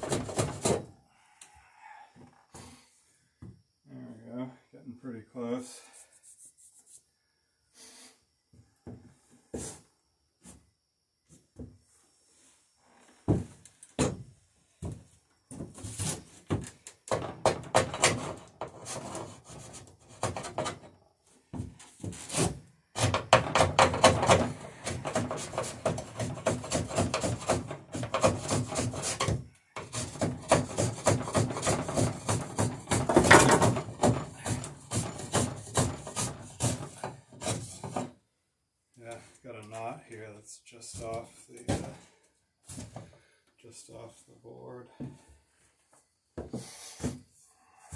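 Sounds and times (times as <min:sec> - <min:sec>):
hand tool shaving wood: 0:00.0 - 0:00.8, 0:17.1 - 0:20.8, 0:22.0 - 0:38.2
knocks on wood: 0:13.3 - 0:14.2, 0:29.2 - 0:38.1.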